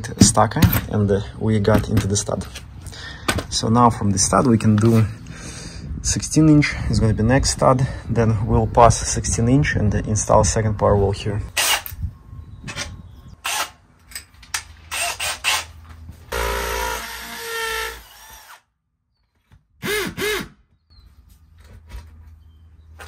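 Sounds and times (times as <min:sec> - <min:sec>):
cordless drill boring into wall: 0:16.3 - 0:18.6.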